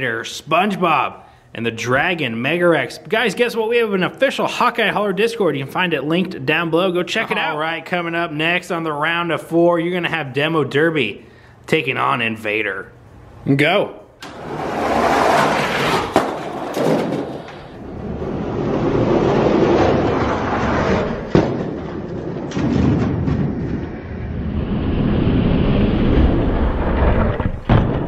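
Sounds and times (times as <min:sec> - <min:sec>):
toy trucks rolling on plastic track: 0:14.2 - 0:18.2.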